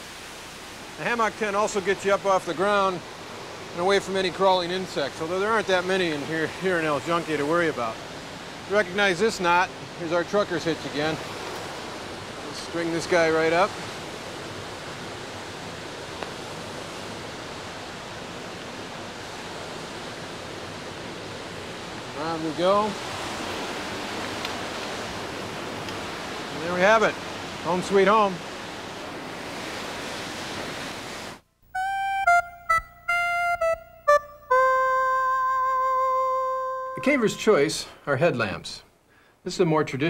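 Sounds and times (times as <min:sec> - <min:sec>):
water rushing: 0:00.0 - 0:31.4.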